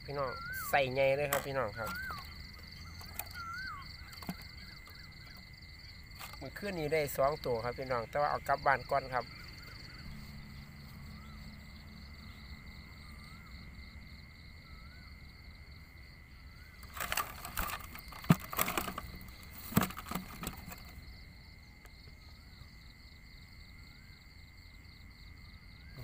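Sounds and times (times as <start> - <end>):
insects droning: 0.0 - 26.0
handling clicks and rattling: 16.8 - 20.9.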